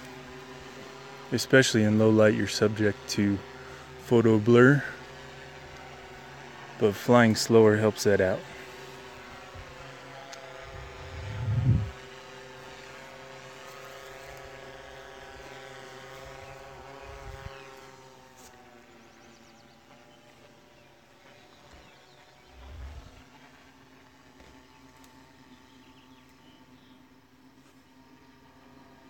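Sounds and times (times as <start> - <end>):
drone propellers whining: 10.4 - 12.1, 22.4 - 23.5
low rumble: 10.6 - 12.0, 22.4 - 23.3.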